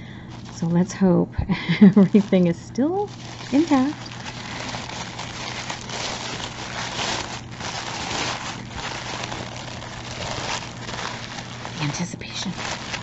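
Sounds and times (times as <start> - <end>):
tissue paper crinkling: 0.0 - 0.9, 1.7 - 13.0.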